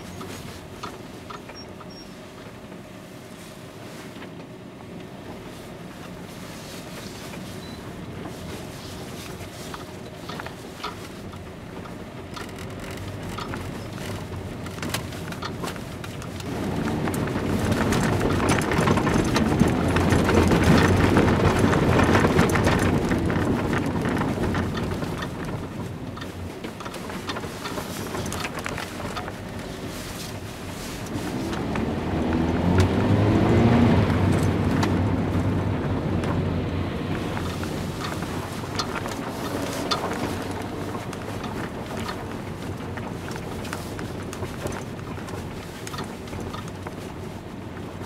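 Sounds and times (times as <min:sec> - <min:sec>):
car engine while driving: 0:00.0 - 0:48.0
tyre and road noise: 0:00.0 - 0:48.0.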